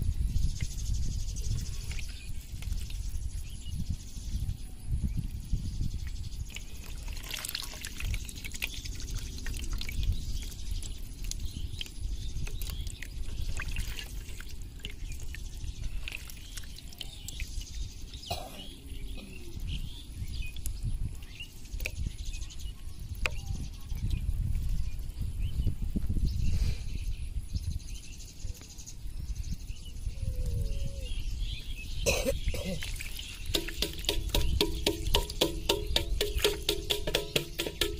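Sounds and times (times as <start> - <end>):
fish splashing in water: 6.8 - 11.4, 32.8 - 37.9.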